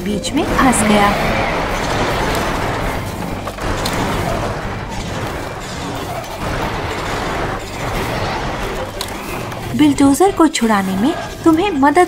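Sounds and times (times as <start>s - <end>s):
tracks grinding: 0.0s - 11.2s
cartoon bulldozer engine rumbling: 0.0s - 11.4s.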